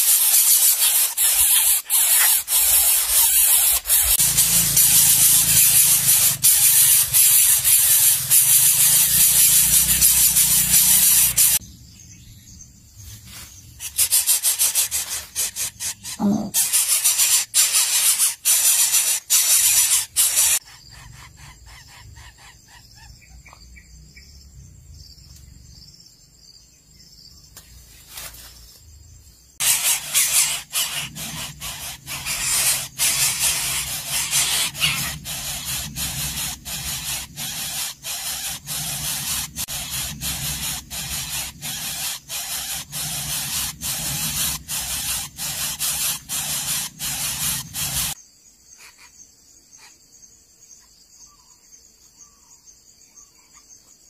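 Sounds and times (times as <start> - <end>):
nestlings begging with hissing rasps: 0.0 - 11.6, 13.8 - 23.8, 29.6 - 50.0.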